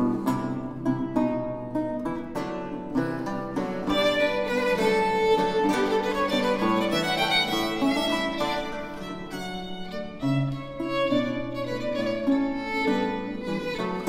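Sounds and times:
plucked theorbo: 0.0 - 14.0
violin melody: 0.0 - 14.0.

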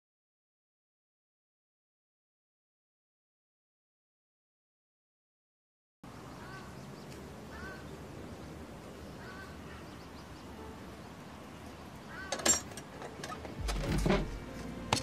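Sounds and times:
faint background noise: 6.0 - 15.0.

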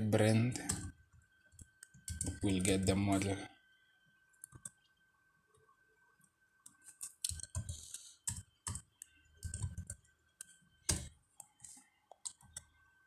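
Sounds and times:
typing on computer keyboard: 0.6 - 1.0, 1.6 - 2.5, 7.3 - 11.5, 12.2 - 12.7.

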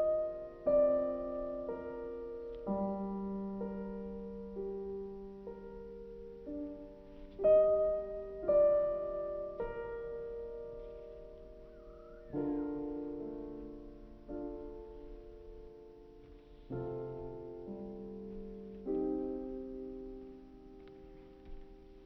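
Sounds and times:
slow piano music: 0.0 - 22.0.

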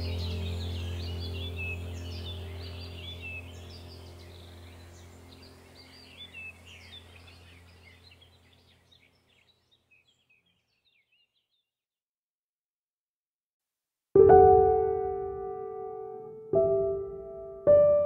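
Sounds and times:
steady low hum: 0.0 - 9.3
small birds chirping: 0.0 - 11.8.

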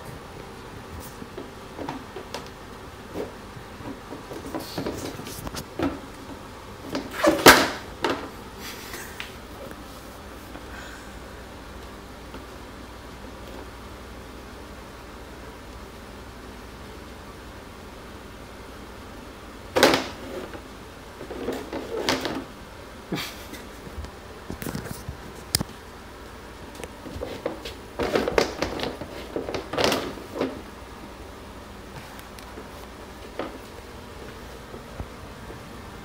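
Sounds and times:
plastic bin lid clattering on floor: 6.9 - 8.4, 19.7 - 20.6, 21.2 - 22.5, 27.1 - 30.7.

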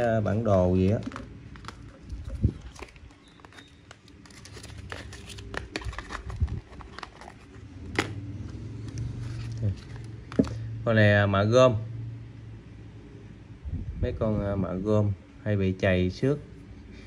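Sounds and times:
box rustling: 0.0 - 8.1.

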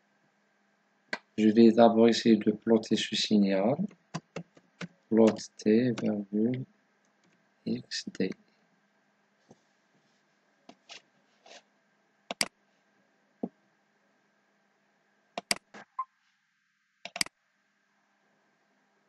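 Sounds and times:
faint electrical hum: 0.0 - 19.0
keyboard clicks: 3.8 - 6.6, 12.3 - 12.5, 15.4 - 15.9, 17.1 - 17.3.

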